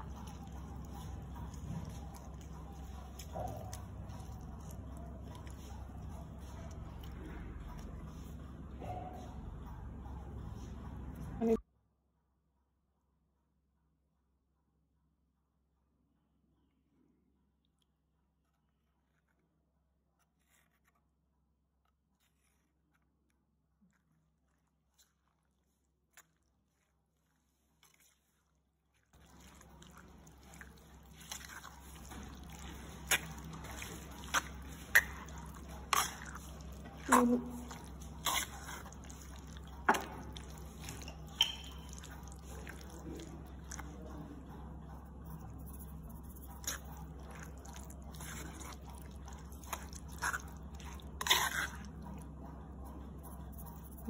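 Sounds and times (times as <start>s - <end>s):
wet stirring in a bowl: 0.0s - 11.6s, 18.3s - 54.0s
steady low hum: 29.2s - 54.0s.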